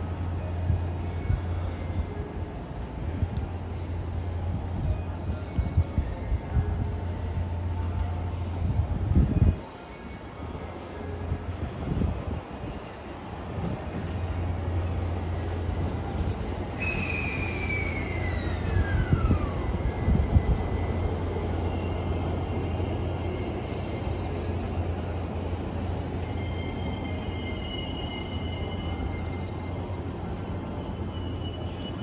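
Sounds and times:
train braking whine: 12.6s - 32.0s.

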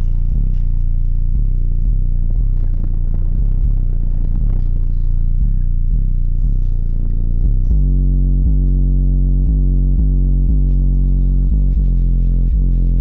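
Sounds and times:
bass-heavy music from subwoofers: 0.0s - 13.0s.

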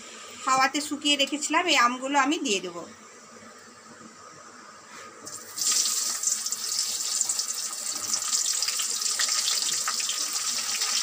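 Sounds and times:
oil sizzling and crackling: 5.3s - 11.0s.

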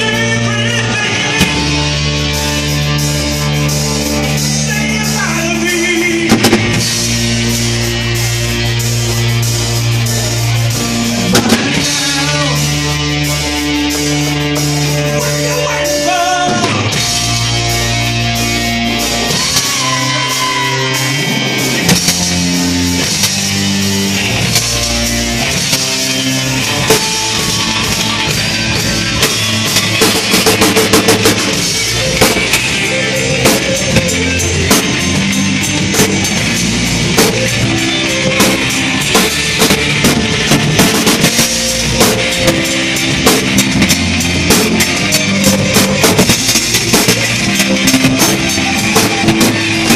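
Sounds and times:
live rock band playing: 0.0s - 49.9s
drum hits: 6.2s - 7.3s, 11.2s - 12.2s, 21.7s - 32.8s, 33.4s - 49.9s.

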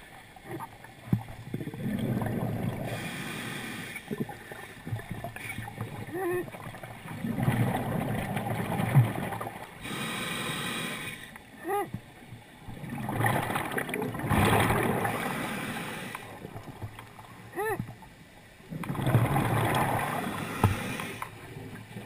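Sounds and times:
bubbling exhale underwater: 1.5s - 3.1s, 12.8s - 15.7s, 18.7s - 21.8s
hissing inhale: 2.8s - 4.2s, 9.8s - 11.4s, 15.1s - 16.4s, 20.2s - 21.4s.

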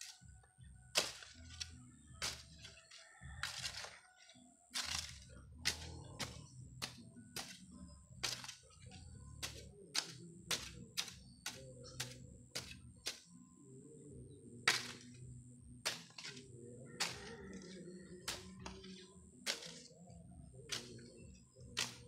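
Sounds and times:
hoe chopping into soil: 1.0s - 2.8s, 3.4s - 4.0s, 4.7s - 13.2s, 14.7s - 15.2s, 15.8s - 17.6s, 18.2s - 19.9s, 20.7s - 21.0s, 21.8s - 22.0s.

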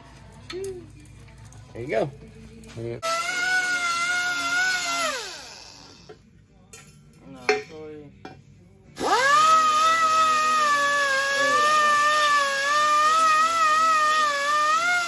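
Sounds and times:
pneumatic grinder whining: 3.0s - 6.2s, 9.0s - 15.0s.

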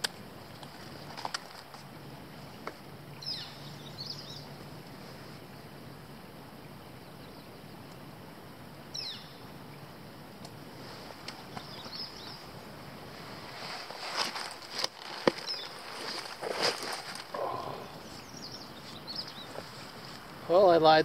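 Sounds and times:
bird chirp: 2.5s - 4.6s, 8.9s - 9.8s, 11.4s - 12.5s, 15.3s - 20.4s
nylon backpack rustling: 10.7s - 20.5s.

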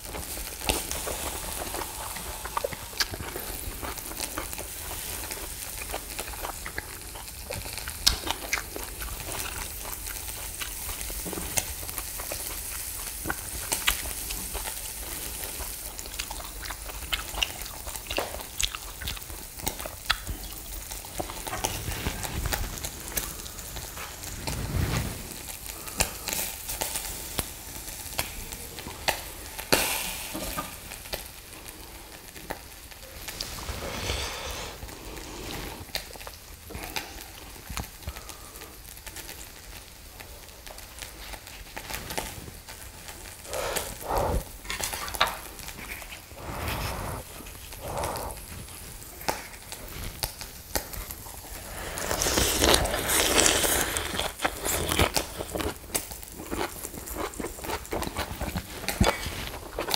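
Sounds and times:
meat sizzling on a grill: 0.0s - 59.9s.

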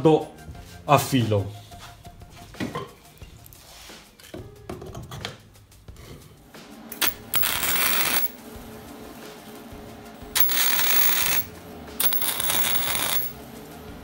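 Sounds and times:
welding arc crackling: 7.0s - 8.2s, 10.4s - 11.4s, 12.2s - 13.2s.

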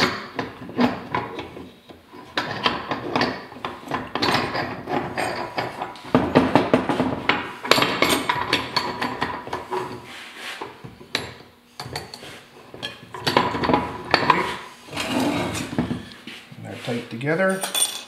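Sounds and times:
steel parts clinking and knocking: 17.5s - 18.0s.

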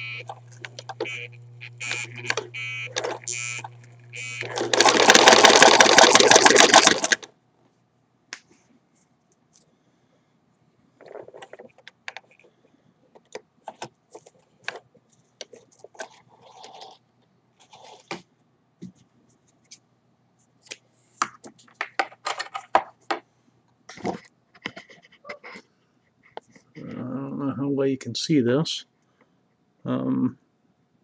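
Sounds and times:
sewing machine clicks: 4.5s - 7.3s.

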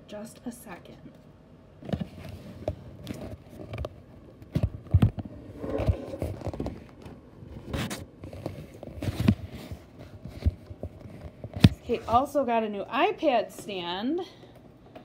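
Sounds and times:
handling noise close to microphone: 1.8s - 12.2s.

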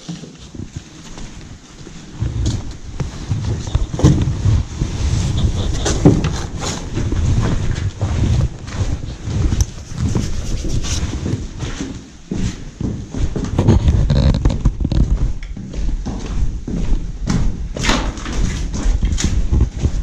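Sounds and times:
clothing rubbing on microphone: 0.0s - 12.6s, 13.2s - 15.4s, 18.8s - 20.0s
knocks and scrapes: 0.0s - 15.5s, 17.3s - 20.0s.

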